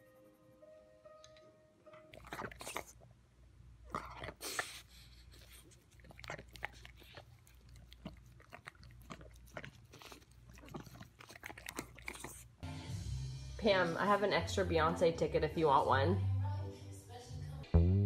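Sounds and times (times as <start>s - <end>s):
puppy chewing with crunching clicks: 1.3s - 3.0s, 3.9s - 12.6s.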